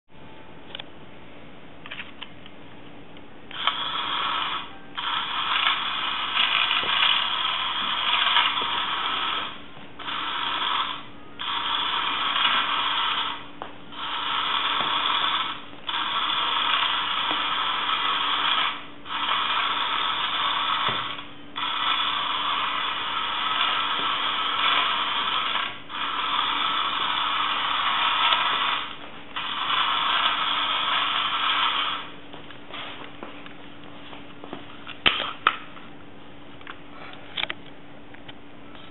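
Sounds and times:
toy electric motor and gears: 0:03.5 - 0:32.2.

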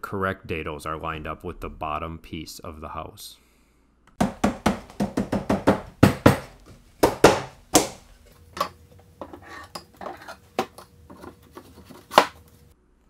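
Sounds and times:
wooden shelves knocking: 0:04.2 - 0:08.7.

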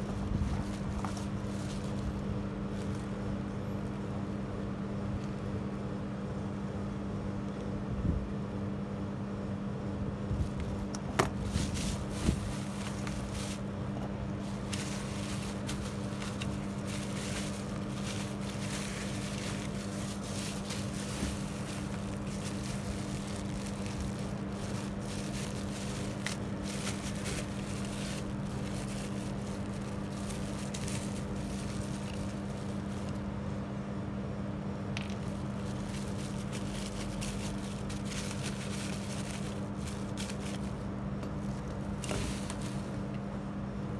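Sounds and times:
bubble wrap crinkling: 0:00.0 - 0:03.5, 0:10.4 - 0:33.4, 0:35.0 - 0:43.2.

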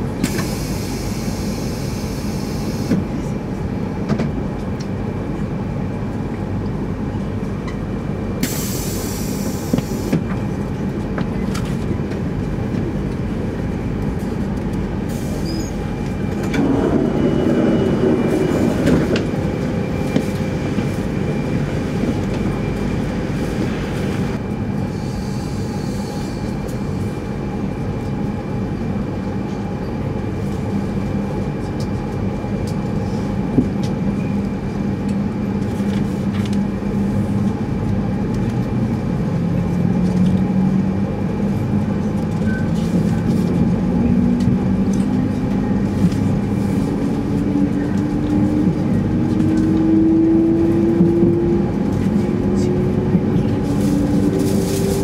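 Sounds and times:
train cabin hum: 0:00.0 - 0:24.8, 0:40.1 - 0:55.0
equipment low rumble: 0:10.3 - 0:24.8.

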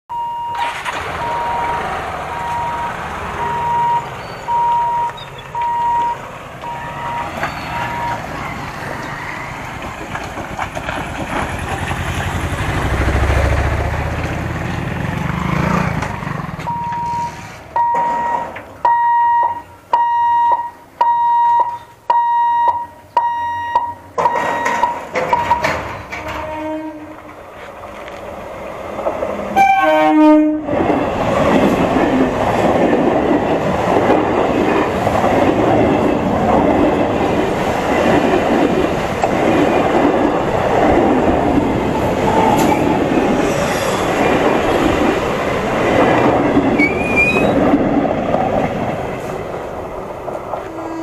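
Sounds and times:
level crossing hooter beeping: 0:00.1 - 0:09.6, 0:16.6 - 0:26.8
motorcycle engine rumbling past: 0:11.6 - 0:17.6.

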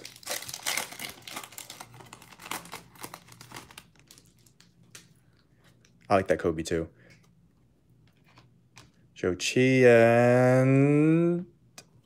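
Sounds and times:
foil wrapper crinkling: 0:00.0 - 0:05.1.

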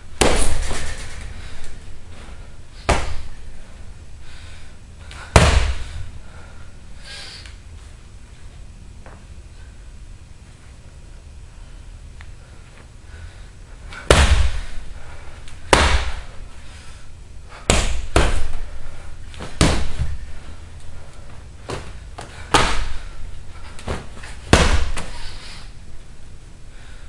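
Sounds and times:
hits on a heavy punching bag: 0:00.2 - 0:01.2, 0:02.8 - 0:03.4, 0:05.3 - 0:06.0, 0:14.0 - 0:14.8, 0:15.6 - 0:16.3, 0:17.6 - 0:18.6, 0:19.4 - 0:20.3, 0:21.7 - 0:23.1, 0:23.9 - 0:25.2.

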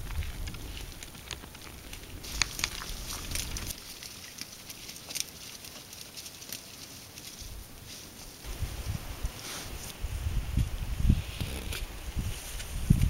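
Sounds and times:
animal biting dry lichen crackles: 0:00.0 - 0:07.4.

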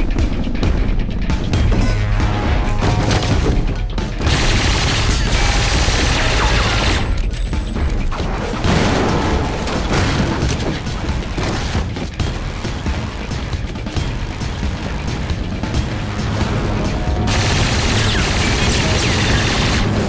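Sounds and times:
loud action film music: 0:00.0 - 0:20.0
submachine gun fire bursts: 0:04.2 - 0:06.9.

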